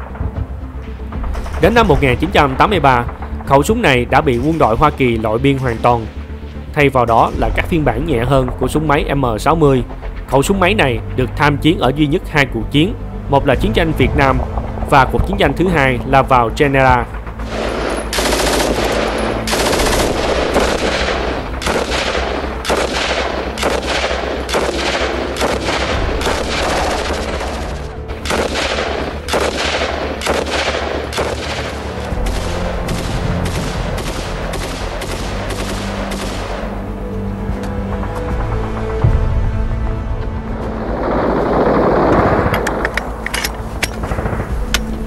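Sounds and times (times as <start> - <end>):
background music with bass: 0.0 - 45.0
automatic gunfire bursts: 17.6 - 21.0.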